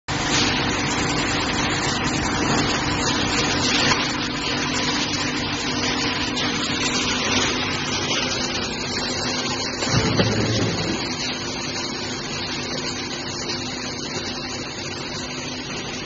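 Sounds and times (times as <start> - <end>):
machinery hum with tones: 0.1 - 16.0
machinery hiss: 6.8 - 14.6.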